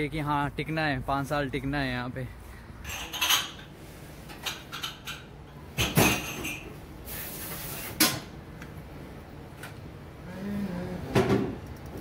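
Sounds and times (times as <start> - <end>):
plates and utensils clinking: 2.8 - 3.7, 4.4 - 6.7
brief hiss: 7.1 - 8.0.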